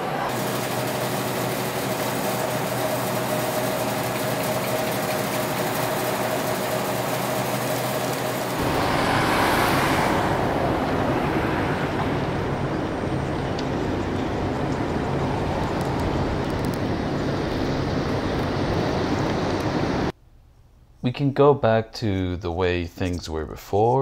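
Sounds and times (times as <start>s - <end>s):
street traffic rush: 6.9s - 20.2s
vehicle passing: 8.5s - 18.7s
low rumble: 8.6s - 19.1s.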